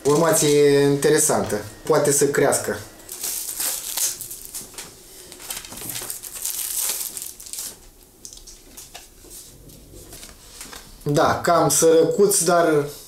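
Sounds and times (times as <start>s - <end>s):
packaging crinkling and rustling: 0.0s - 0.8s, 3.0s - 11.0s.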